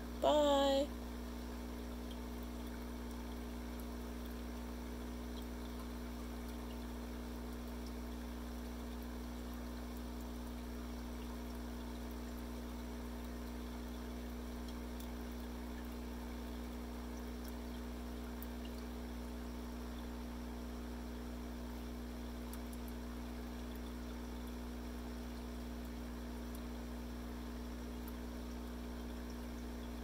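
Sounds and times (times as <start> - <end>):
aquarium filter hum: 0.0 - 30.0
water trickling: 0.0 - 30.0.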